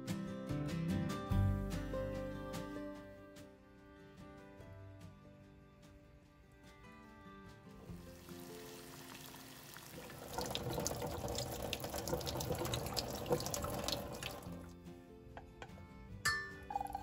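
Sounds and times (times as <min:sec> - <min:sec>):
soft background music: 0:00.0 - 0:17.0
hot water pouring into a sink: 0:07.9 - 0:14.7.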